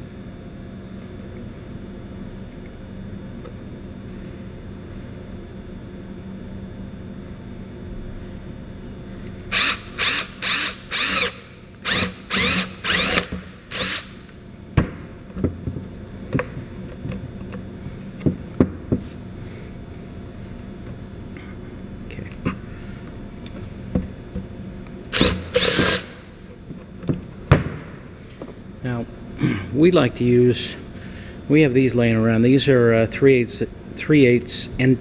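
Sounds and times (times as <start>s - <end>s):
cordless drill boring through plastic: 9.5s - 14.2s, 25.2s - 26.2s.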